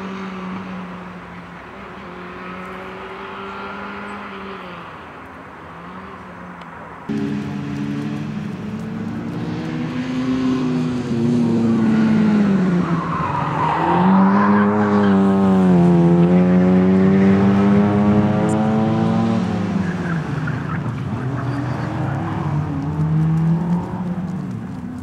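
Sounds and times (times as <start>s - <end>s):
small car engine revving hard: 1.8s - 5.0s, 7.1s - 20.5s.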